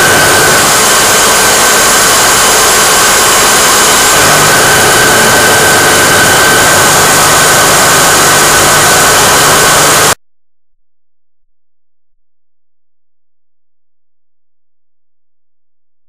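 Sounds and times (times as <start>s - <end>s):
assembly machine running with whine: 0.0s - 10.2s.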